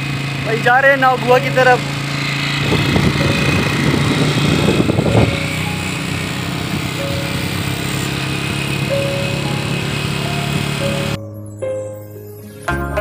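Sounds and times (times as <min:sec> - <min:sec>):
motorcycle engine running: 0:00.0 - 0:11.2
wind buffeting microphone: 0:02.1 - 0:07.8.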